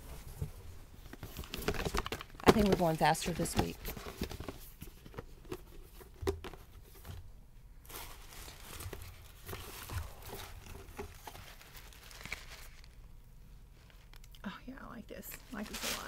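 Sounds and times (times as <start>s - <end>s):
hair rustling and crackling: 7.9s - 13.1s, 15.2s - 16.0s.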